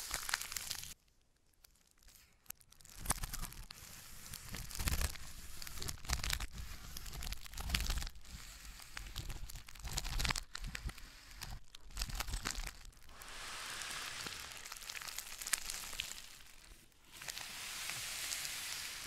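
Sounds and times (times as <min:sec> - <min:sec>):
plastic crinkling: 0:00.0 - 0:19.0
scissors cutting plastic: 0:02.8 - 0:08.2.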